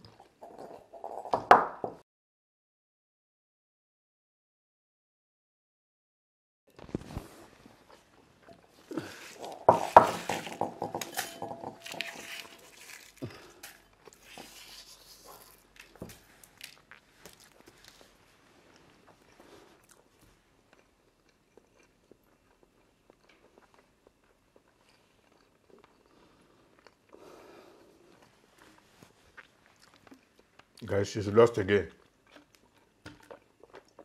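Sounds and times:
glass bowl knocking on wooden table: 9.6 - 11.8.

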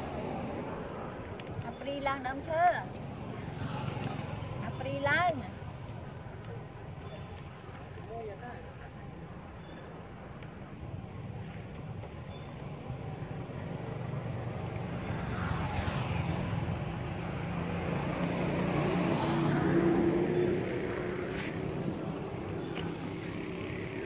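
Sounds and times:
vehicle passing: 2.0 - 9.0, 12.9 - 24.0.

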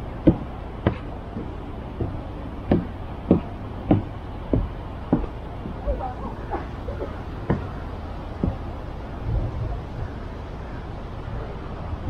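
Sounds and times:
low steady rumble: 0.0 - 12.0
footsteps walking: 0.2 - 8.8.

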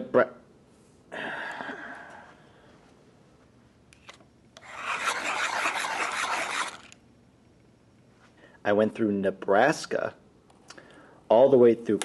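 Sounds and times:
pencil scratching on paper: 4.6 - 6.9
hand-crank pencil sharpener grinding: 4.6 - 7.0.

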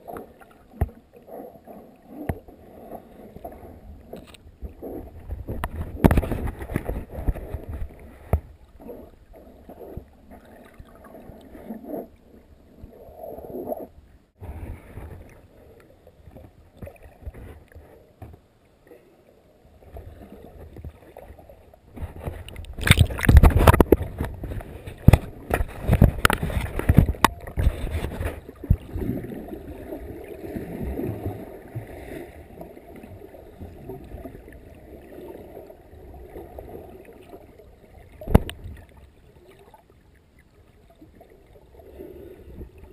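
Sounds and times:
water gurgling: 0.0 - 18.2, 18.9 - 42.9
water sloshing and splashing: 0.0 - 18.5, 19.8 - 42.9
loud splashes and knocks: 21.9 - 29.1.

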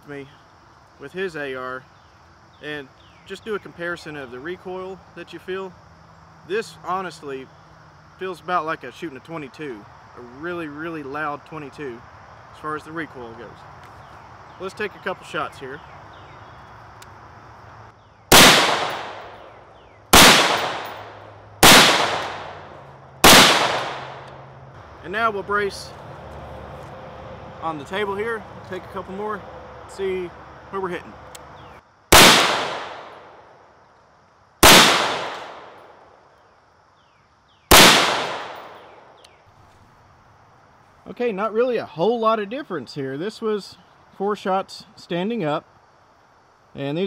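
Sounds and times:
rifle shots with echo: 18.3 - 24.3, 32.1 - 33.4, 34.6 - 35.8, 37.7 - 39.0.

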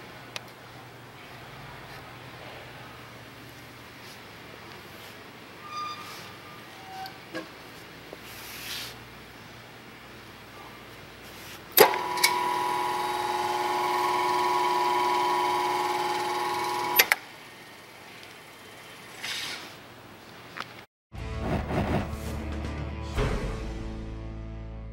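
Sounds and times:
mixer motor whining: 11.8 - 17.2.

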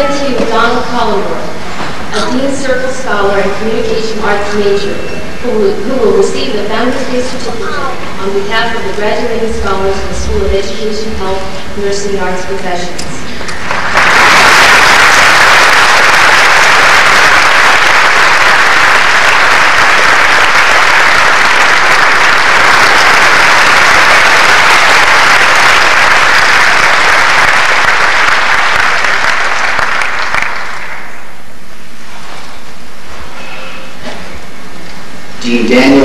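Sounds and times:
large audience applauding: 13.4 - 31.4.

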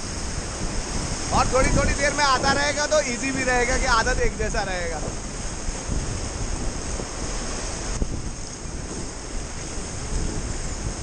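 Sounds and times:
whitewater rapids rushing: 0.0 - 11.0
wind buffeting microphone: 0.0 - 11.0.

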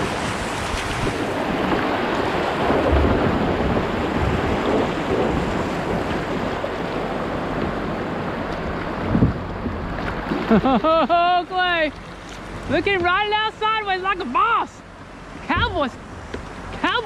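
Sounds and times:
wind buffeting microphone: 0.0 - 10.6.

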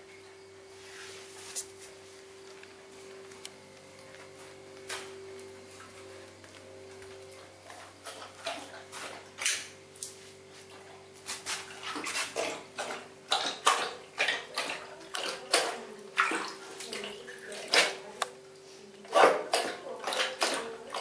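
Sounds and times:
dog lapping water: 7.4 - 9.6, 10.6 - 18.2, 19.0 - 21.0.

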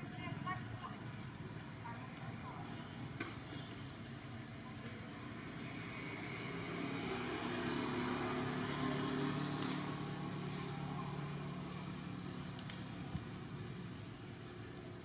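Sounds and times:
distant vehicle engine passing: 3.7 - 15.0.

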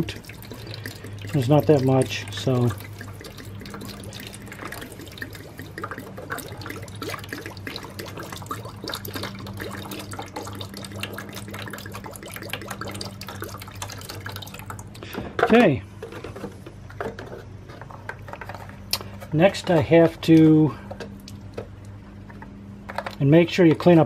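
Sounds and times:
liquid dripping into plastic jug: 0.0 - 15.5.

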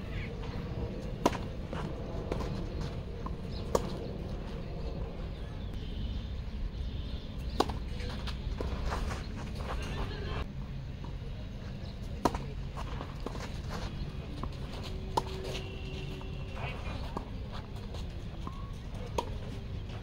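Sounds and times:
low outdoor rumble: 0.0 - 20.0
tennis ball hits off rackets: 1.2 - 2.6, 7.5 - 8.7.

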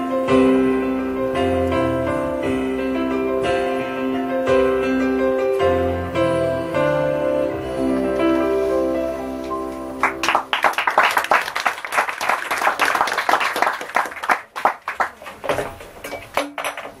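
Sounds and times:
held music chord: 0.0 - 10.5
audience applause: 10.0 - 15.5.

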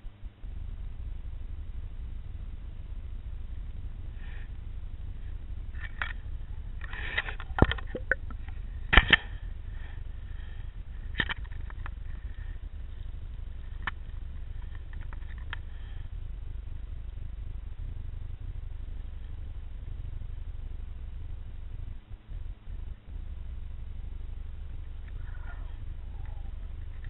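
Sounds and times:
low underwater rumble: 0.2 - 27.0
sharp clicks and knocks: 6.8 - 9.3, 11.1 - 12.0.

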